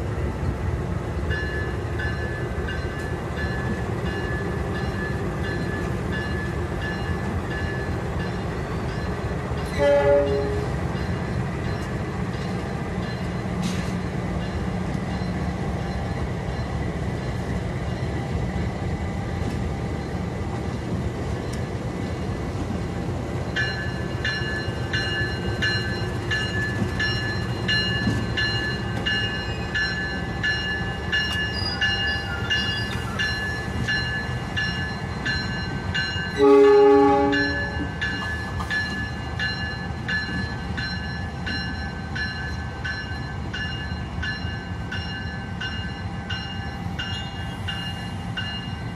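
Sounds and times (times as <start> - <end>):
locomotive horn blast: 9.7 - 10.7, 36.4 - 37.9.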